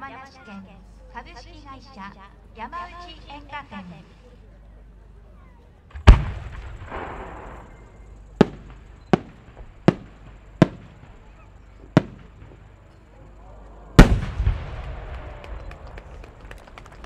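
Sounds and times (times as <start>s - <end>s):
firework mortar thump: 5.9s - 13.0s, 14.0s - 16.2s
firework cracks: 5.9s - 17.0s.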